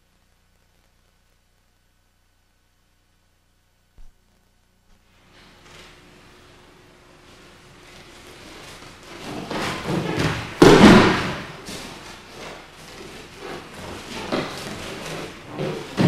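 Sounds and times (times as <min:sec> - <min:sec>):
body thudding on mat: 0:09.2 - 0:12.1.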